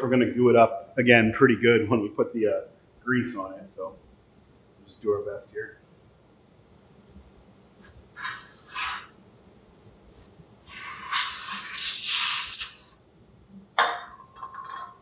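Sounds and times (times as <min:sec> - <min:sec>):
spray can hissing: 0:07.8 - 0:09.1, 0:10.1 - 0:13.0.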